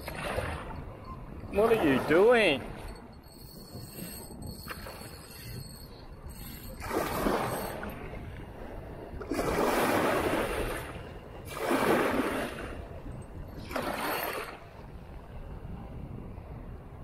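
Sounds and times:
waves washing in: 0.0s - 3.0s, 6.5s - 16.3s.

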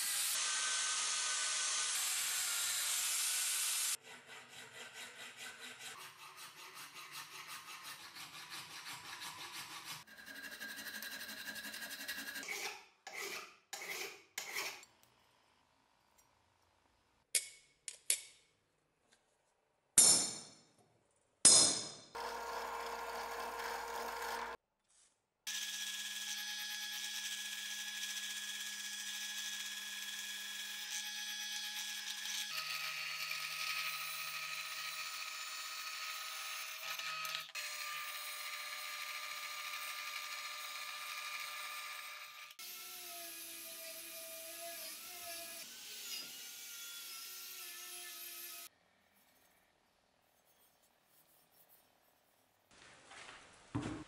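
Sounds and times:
angle grinder running: 22.2s - 24.6s
drill press boring steel: 22.2s - 24.6s.

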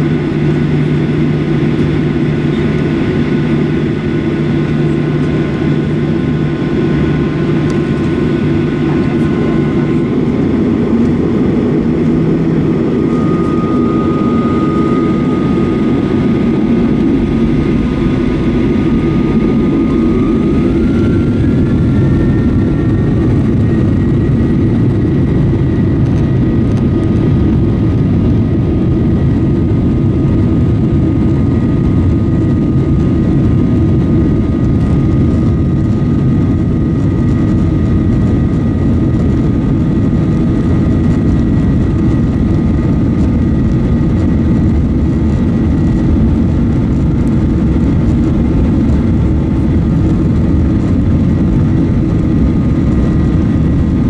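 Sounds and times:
thin whining engine tones: 0.0s - 27.0s
jet engines roaring: 0.0s - 54.0s.

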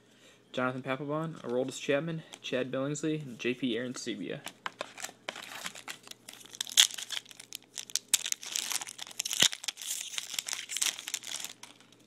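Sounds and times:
foil wrapper crinkling: 4.6s - 12.0s.

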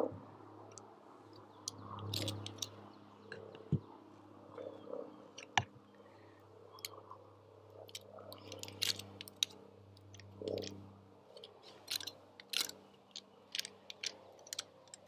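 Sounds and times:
faint low hum: 0.0s - 15.0s
knife scraping pine cone scales: 7.9s - 9.6s, 11.4s - 15.0s.

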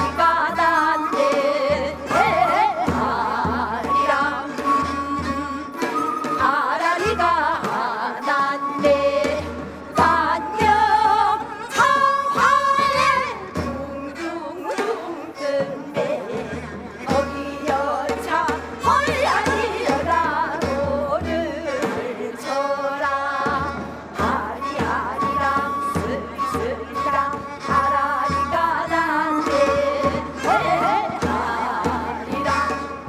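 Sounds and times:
flute: 0.0s - 33.0s
women singing folk song: 0.0s - 33.0s
drums keeping steady beat: 16.5s - 22.2s, 23.4s - 33.0s.

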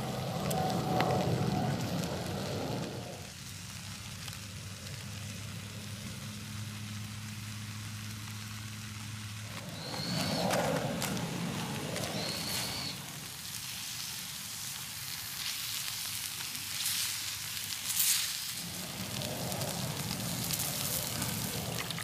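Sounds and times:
low hum: 0.0s - 3.4s, 18.5s - 22.0s
food sizzling on a grill: 0.0s - 22.0s.

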